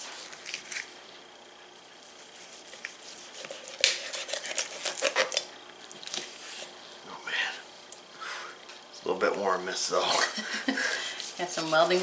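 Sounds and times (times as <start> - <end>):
knife crunching through crisp skin: 2.4 - 6.7.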